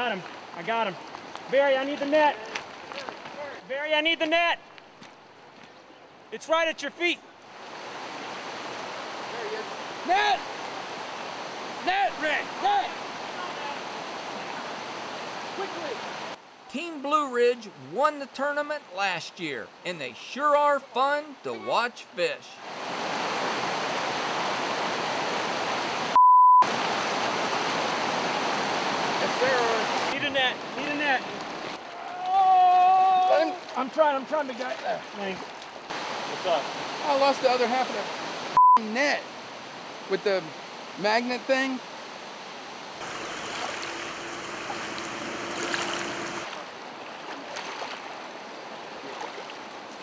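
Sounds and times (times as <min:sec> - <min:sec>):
rushing white-water river: 0:07.5 - 0:16.4, 0:18.1 - 0:32.0, 0:33.2 - 0:38.6, 0:39.2 - 0:50.0
river rushing over rocks: 0:22.6 - 0:30.9, 0:35.9 - 0:38.6, 0:42.9 - 0:47.0
censor bleep: 0:26.2 - 0:26.7, 0:38.6 - 0:38.9.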